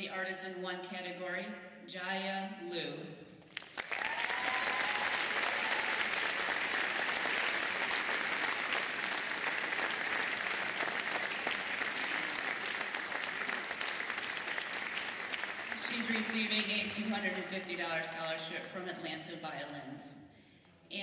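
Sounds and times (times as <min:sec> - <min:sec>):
audience applauding: 0:03.5 - 0:18.1.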